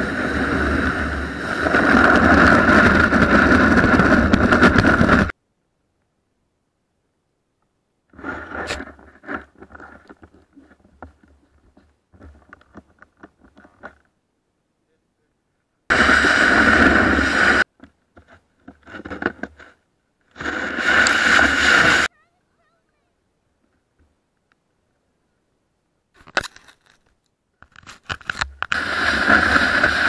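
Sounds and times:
snow crunching against snowboard: 15.9 - 17.7, 20.4 - 22.1, 28.7 - 30.0.

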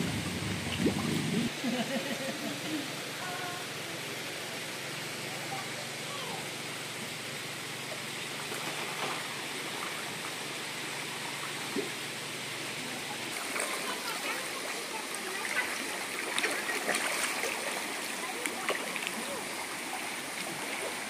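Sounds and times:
river water running over riverbed: 0.0 - 21.0
fish splashing at surface: 13.2 - 21.0.

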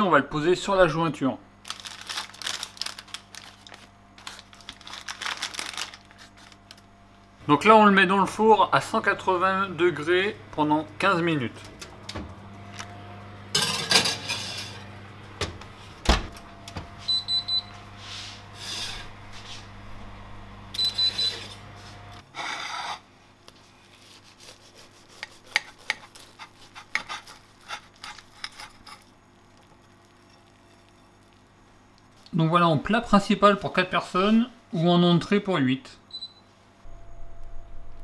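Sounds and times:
oven humming: 0.0 - 38.0
baking paper rustling: 1.6 - 6.8
knife crunching through bread roll: 23.6 - 30.6.

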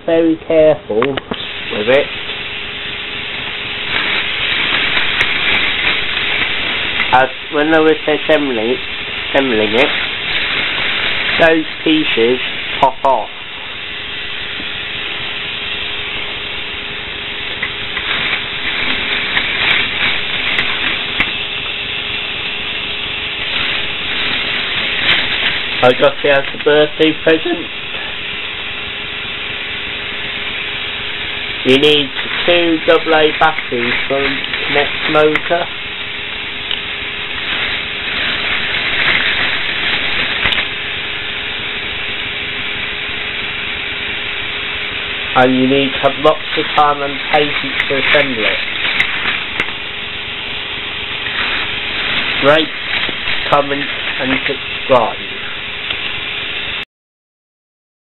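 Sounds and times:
constant hiss: 0.0 - 56.8
toy motor humming: 31.6 - 35.8.

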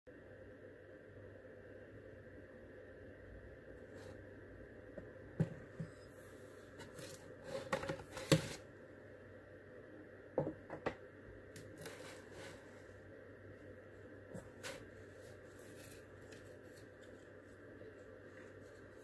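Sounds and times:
paper rustling: 14.4 - 19.0.

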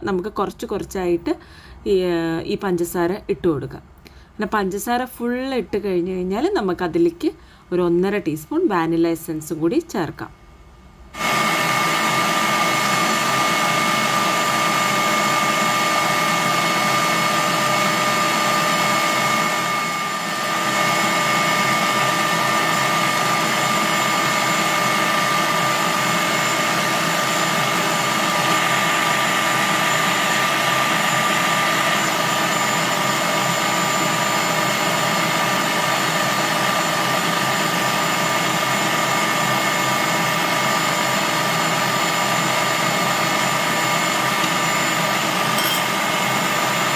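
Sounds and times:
stand mixer whisking: 11.2 - 46.9.

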